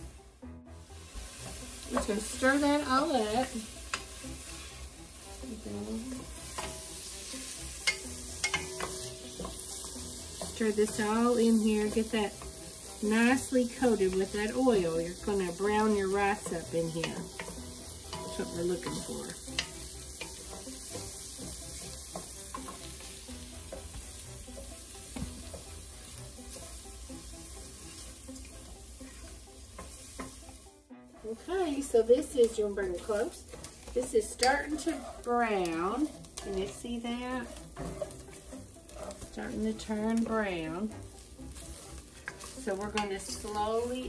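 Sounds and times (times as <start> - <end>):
food sizzling in oil: 0.0 - 44.0
spoon scraping a pan: 1.2 - 30.6, 31.2 - 44.0
wooden spoon knocking on pan: 1.5 - 2.4.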